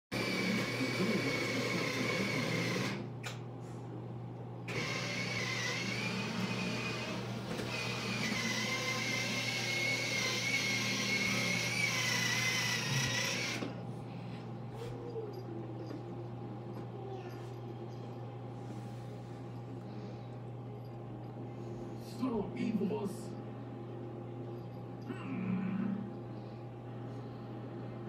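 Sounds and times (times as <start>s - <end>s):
small motor whining: 0.2s - 3.0s, 4.7s - 13.8s.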